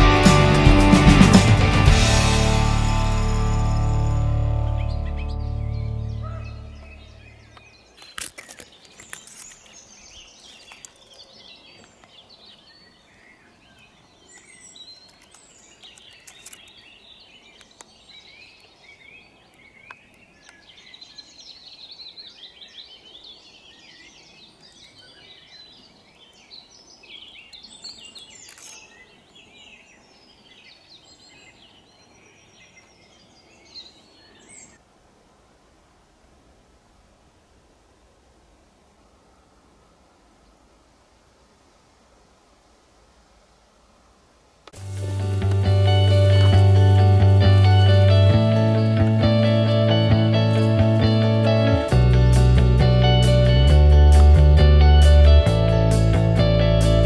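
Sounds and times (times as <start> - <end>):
songbirds singing and chirping: 4.0 - 34.8
sharp clicks: 15.0 - 16.8.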